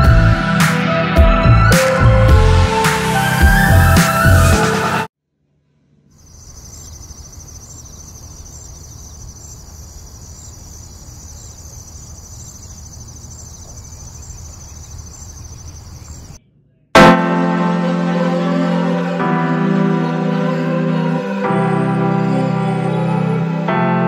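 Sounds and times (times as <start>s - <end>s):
music: 0.0s - 5.1s, 17.0s - 24.0s
insects trilling: 6.2s - 16.4s.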